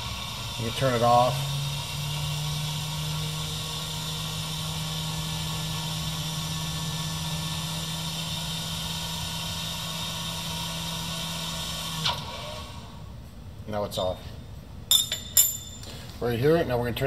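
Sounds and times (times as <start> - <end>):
electromagnetic chuck humming: 0.0 - 13.1.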